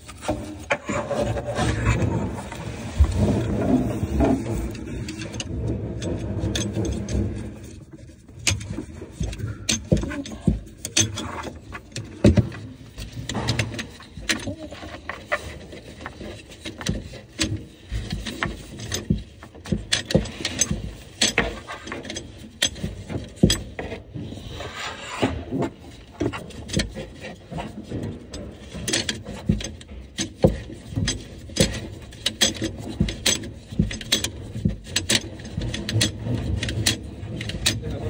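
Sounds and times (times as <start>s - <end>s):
rustling: 0.0s - 19.3s.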